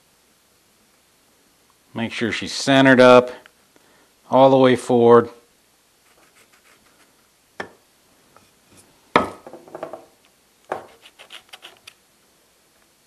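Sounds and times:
wood knocking on workbench: 9.2s - 10.1s.

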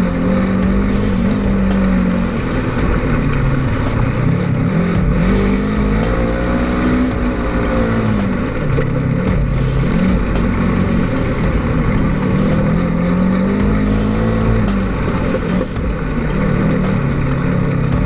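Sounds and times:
engine revving: 0.0s - 18.0s.

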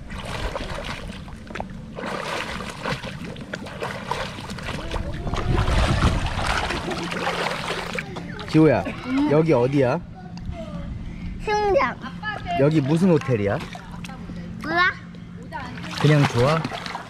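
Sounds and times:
pool water splashing: 0.0s - 9.8s, 15.6s - 17.0s.

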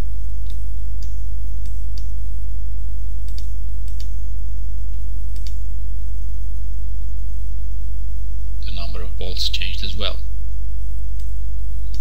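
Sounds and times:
low hum: 0.0s - 12.0s
computer mouse clicking: 0.4s - 2.1s, 3.2s - 4.2s, 5.3s - 5.6s.

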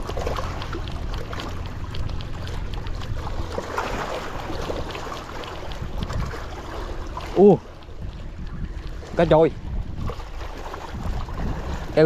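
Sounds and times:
lake water lapping on rocks: 0.0s - 12.0s
wind buffeting microphone: 0.0s - 12.0s
light ticks: 0.3s - 3.6s.

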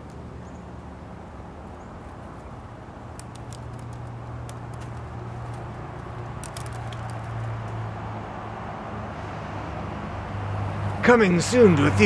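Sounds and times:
faint clicks: 3.1s - 7.8s.

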